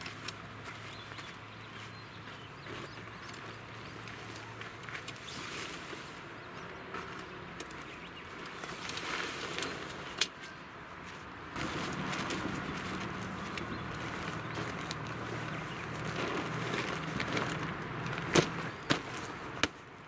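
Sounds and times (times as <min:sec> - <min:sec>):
tent fabric rustling: 0:08.5 - 0:10.2, 0:11.1 - 0:19.6.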